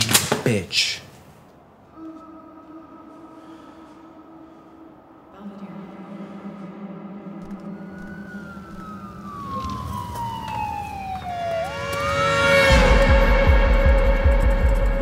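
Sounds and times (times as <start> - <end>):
siren wailing: 2.0 - 15.0
music with heavy low beat: 12.7 - 15.0.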